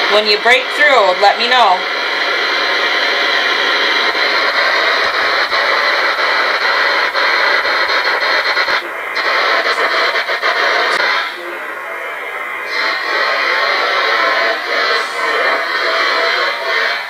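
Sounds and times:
radio static hissing: 0:00.0 - 0:17.0
quick radio clicks: 0:03.1 - 0:11.6.

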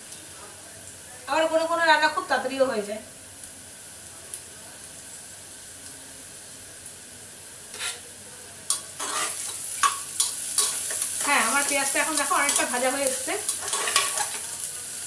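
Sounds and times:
onions sizzling in oil: 0:00.0 - 0:15.0
utensil scraping pan: 0:07.7 - 0:08.0, 0:09.0 - 0:10.0, 0:13.5 - 0:14.4.

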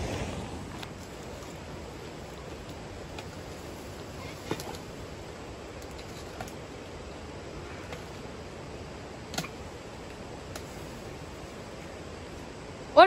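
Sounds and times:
background hiss: 0:00.0 - 0:13.0
banana leaves snapping: 0:09.2 - 0:11.2.

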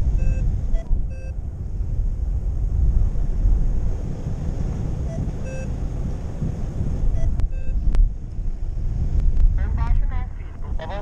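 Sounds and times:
wind rushing over microphone: 0:00.0 - 0:11.0
short electronic beeps: 0:00.2 - 0:01.4, 0:05.1 - 0:05.7, 0:07.1 - 0:07.8.

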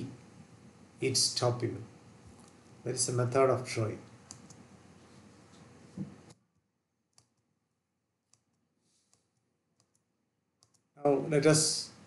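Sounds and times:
faint background hiss: 0:00.0 - 0:06.4, 0:07.2 - 0:12.0
faint computer clicks: 0:04.2 - 0:04.6.

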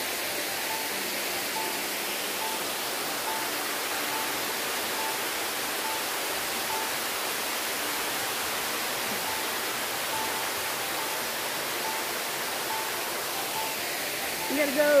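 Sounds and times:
creek flowing over rocks: 0:00.0 - 0:15.0.

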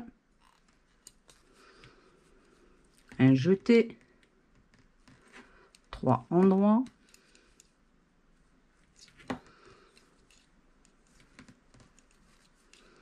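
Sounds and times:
knitting needles clicking: 0:03.9 - 0:07.8, 0:09.0 - 0:13.0.

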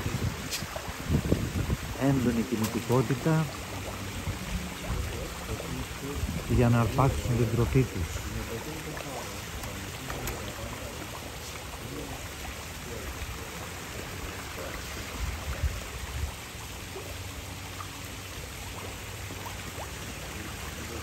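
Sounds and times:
trickling running water: 0:00.0 - 0:21.0
fish splashing at surface: 0:00.1 - 0:06.5, 0:07.1 - 0:15.9.

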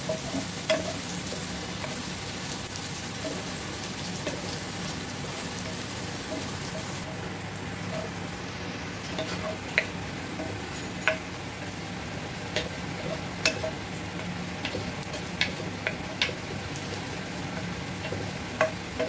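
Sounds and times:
wooden spoon ticking against pot: 0:00.0 - 0:02.2, 0:05.6 - 0:07.2, 0:07.9 - 0:08.2, 0:09.1 - 0:19.0
garlic sizzling in oil: 0:00.0 - 0:19.0.

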